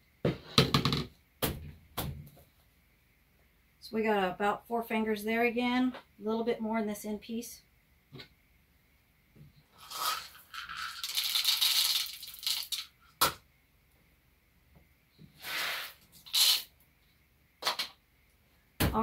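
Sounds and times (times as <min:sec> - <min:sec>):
dried corn kernels rattling: 0:09.8 - 0:12.9.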